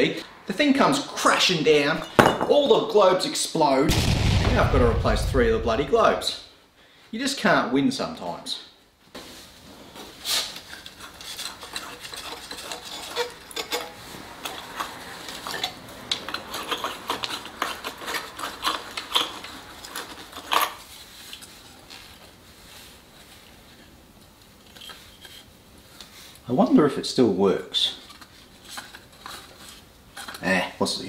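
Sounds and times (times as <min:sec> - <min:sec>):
glass and plastic clinking: 0:02.0 - 0:02.6.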